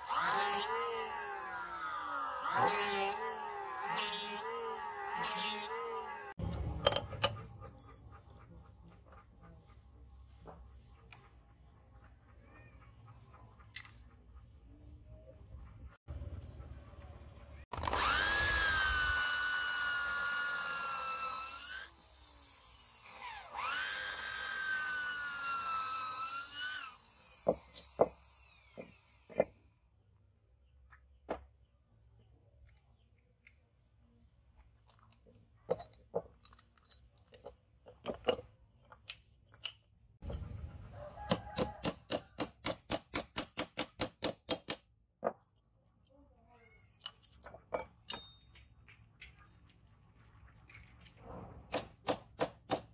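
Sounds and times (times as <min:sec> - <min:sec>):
electric drill boring wood: 0:00.0 - 0:06.4, 0:17.7 - 0:29.6.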